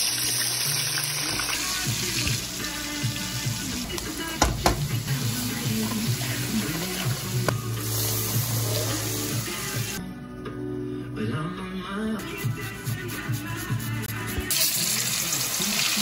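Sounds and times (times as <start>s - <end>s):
sauce sizzling in hot oil: 0.0s - 10.0s, 14.5s - 16.0s
metal spoon knocking against pan: 4.4s - 5.0s.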